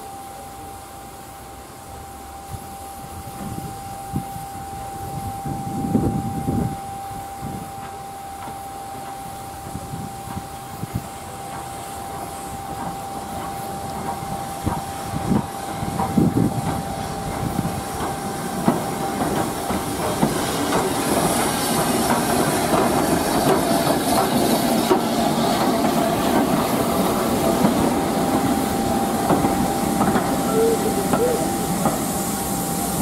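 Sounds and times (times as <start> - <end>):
steam hissing: 0.0 - 33.0
train wheels clicking over rail joints: 7.7 - 33.0.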